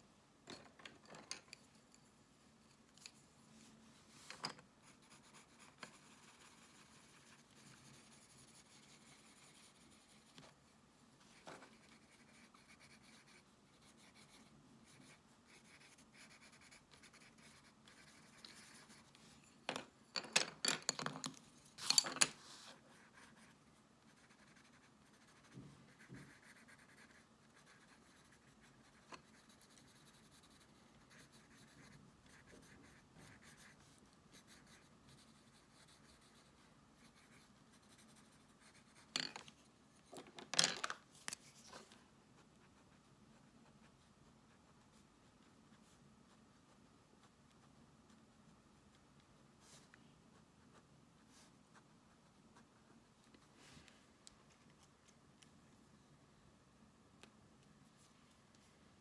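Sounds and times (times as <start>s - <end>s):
pencil crayon scratching on paper: 4.8s - 10.6s, 11.3s - 19.4s, 22.4s - 39.1s.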